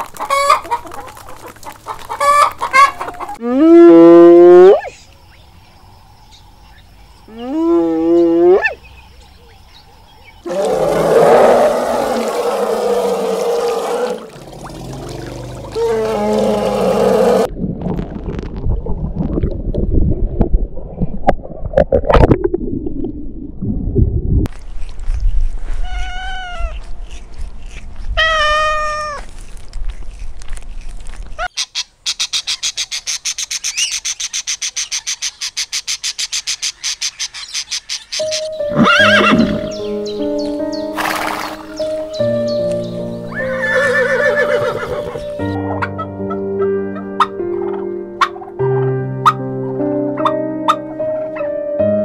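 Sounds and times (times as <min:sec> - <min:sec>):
cat meowing: 0:25.8 - 0:26.8, 0:28.2 - 0:29.2.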